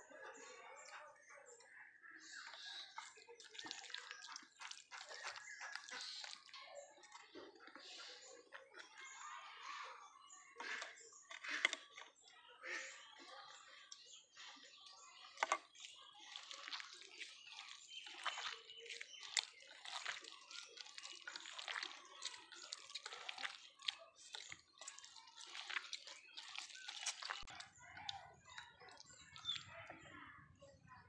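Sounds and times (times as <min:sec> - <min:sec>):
hand squelching mashed food: 0:03.1 - 0:08.2, 0:15.2 - 0:30.0.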